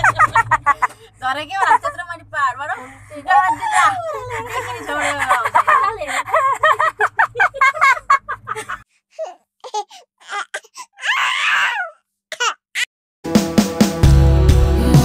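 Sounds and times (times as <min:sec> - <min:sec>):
women laughing and giggling: 0:00.0 - 0:02.1, 0:02.8 - 0:08.9.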